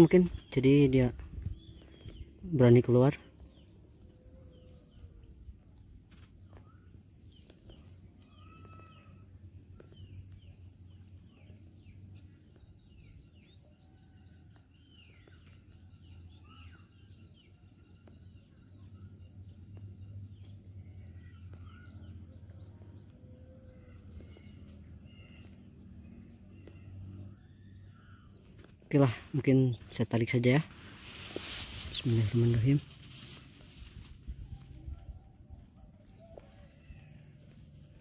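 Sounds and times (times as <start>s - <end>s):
small birds chirping: 0.0s - 38.0s
steady high hiss: 30.5s - 34.2s.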